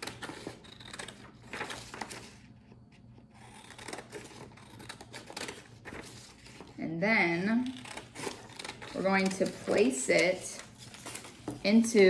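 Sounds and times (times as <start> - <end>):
scissors cutting paper: 0.0 - 2.5, 3.3 - 12.0.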